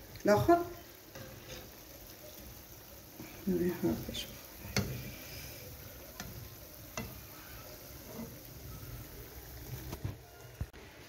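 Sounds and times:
pastries sizzling in hot oil: 0:00.0 - 0:11.0
metal spatula clicking on pan: 0:04.7 - 0:05.0, 0:06.2 - 0:07.2.

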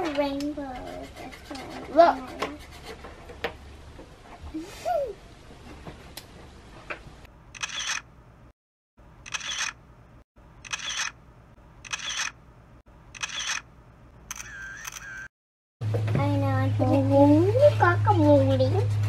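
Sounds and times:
camera shutter clicks: 0:07.6 - 0:08.1, 0:09.2 - 0:09.8, 0:10.6 - 0:11.2, 0:11.8 - 0:12.4, 0:13.1 - 0:13.7, 0:14.3 - 0:15.3.

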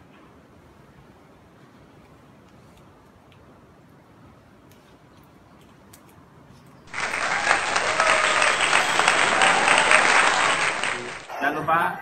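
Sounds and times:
applause: 0:06.9 - 0:11.4.

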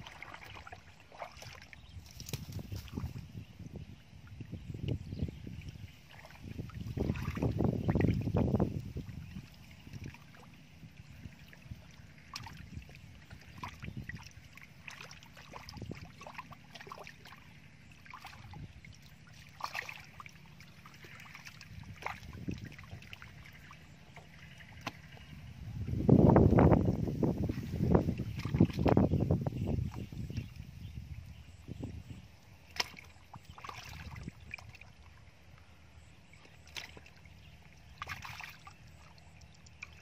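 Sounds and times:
muddy water splashing: 0:00.0 - 0:03.4, 0:04.3 - 0:40.0.

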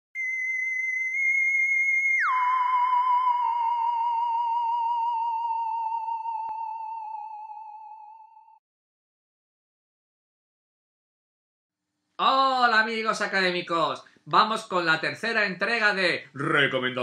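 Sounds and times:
theremin-like electronic tone: 0:00.2 - 0:08.6.

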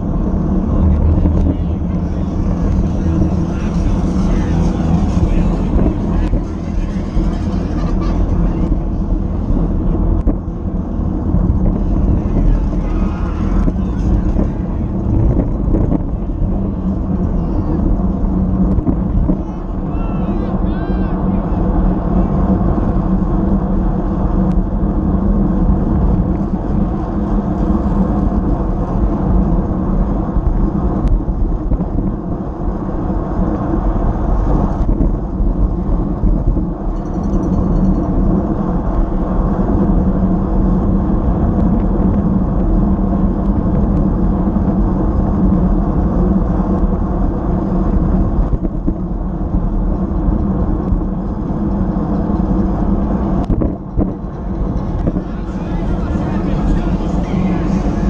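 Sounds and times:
road noise: 0:00.0 - 0:58.0
wind rush: 0:00.0 - 0:58.0.

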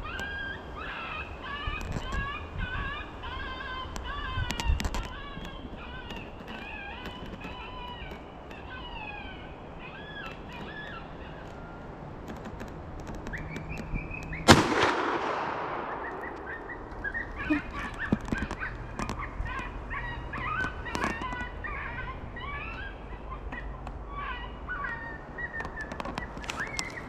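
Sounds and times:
shotgun shot with echo: 0:14.5 - 0:16.9.

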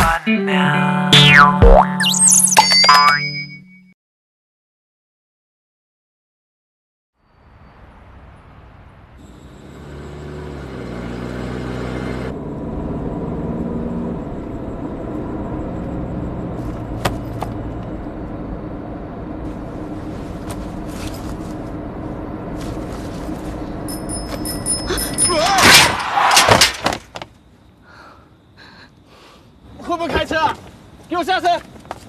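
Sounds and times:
car engine and road noise: 0:07.2 - 0:27.8.

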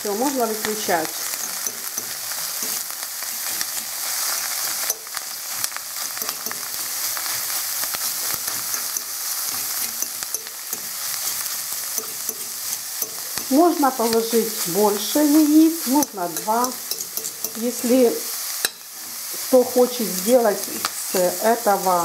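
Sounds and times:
egg sizzling in a frying pan: 0:00.0 - 0:22.0
fork scraping a pan: 0:01.2 - 0:17.9.

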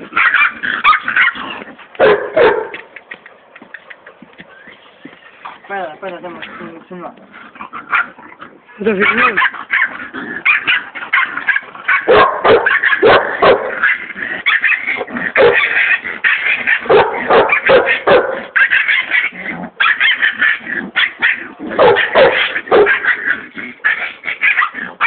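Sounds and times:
puppy barking and yipping: 0:00.1 - 0:02.9, 0:07.8 - 0:08.2, 0:08.9 - 0:25.0.

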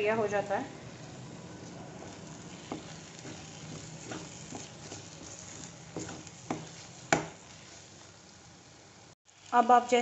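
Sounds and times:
paste sizzling in oil: 0:00.8 - 0:10.0
spoon knocking and scraping pan: 0:02.0 - 0:07.9.

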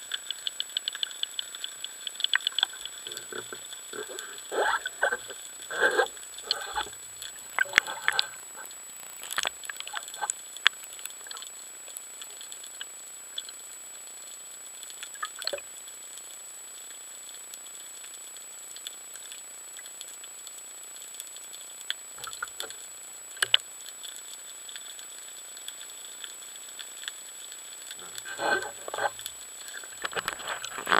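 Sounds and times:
underwater crackling clicks: 0:00.0 - 0:11.6, 0:15.0 - 0:15.6, 0:21.9 - 0:30.9
air bubbles bubbling: 0:02.2 - 0:10.3.

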